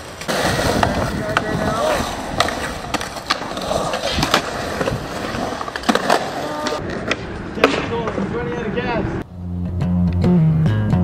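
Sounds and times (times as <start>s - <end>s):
skateboard clacking on ground: 0.0s - 8.4s
skateboard wheels rolling on concrete: 0.0s - 9.3s.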